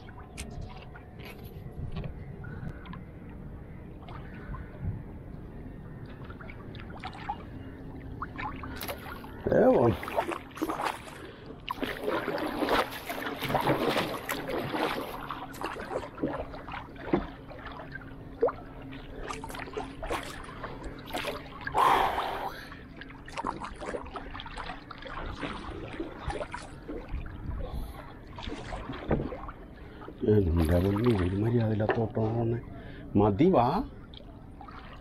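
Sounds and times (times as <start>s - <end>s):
water splashing against canoe: 8.3s - 18.6s, 28.4s - 29.6s.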